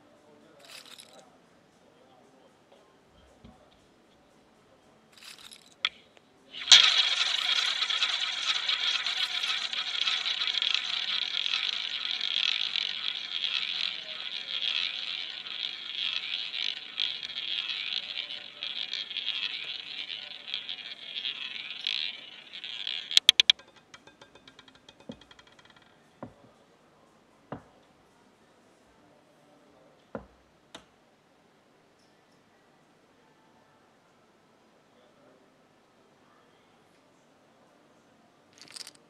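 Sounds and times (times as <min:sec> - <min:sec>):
roulette ball clicking in pockets: 0:06.6 - 0:26.4, 0:38.6 - 0:39.0
roulette ball rolling whirr: 0:06.6 - 0:26.4.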